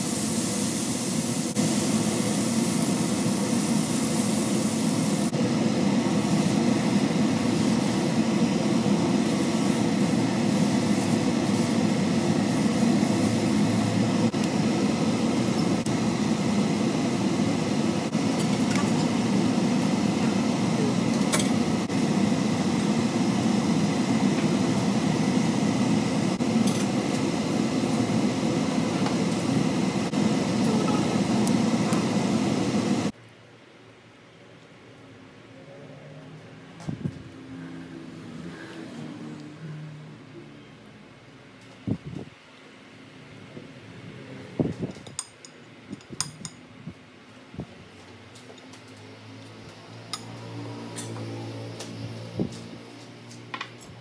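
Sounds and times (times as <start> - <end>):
exhaust fan whirring: 0.0 - 33.2, 49.1 - 54.0.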